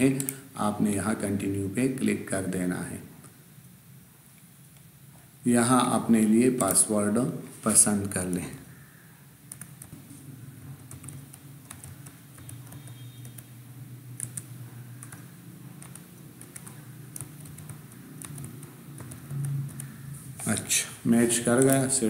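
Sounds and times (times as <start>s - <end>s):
low steady hum: 0.0s - 22.0s
keyboard keystrokes: 9.4s - 10.1s, 10.7s - 13.5s, 14.1s - 20.6s, 21.4s - 21.9s.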